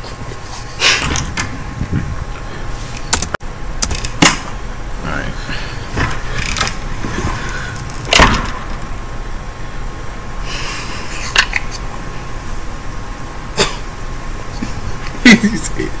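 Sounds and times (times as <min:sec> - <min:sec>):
low rumble: 0:01.0 - 0:03.8.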